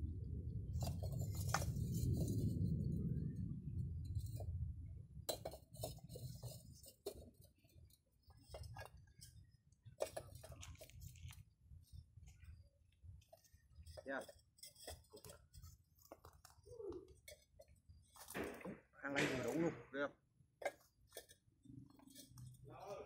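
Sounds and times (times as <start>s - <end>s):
low rumble: 0.0s - 5.3s.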